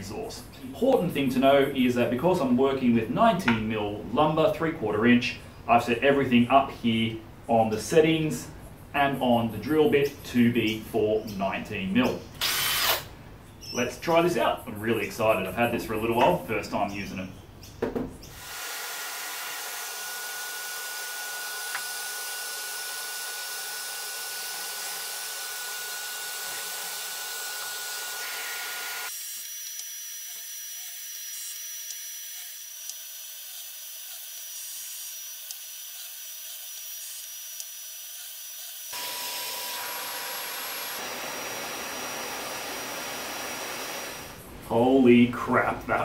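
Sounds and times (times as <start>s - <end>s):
shop vacuum running: 18.4s - 29.1s, 38.9s - 44.4s.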